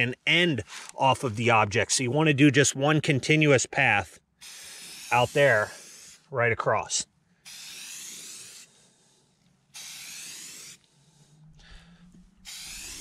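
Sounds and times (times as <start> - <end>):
spray paint can hissing: 4.4 - 6.2, 7.4 - 8.9, 9.7 - 11.0, 12.4 - 13.0.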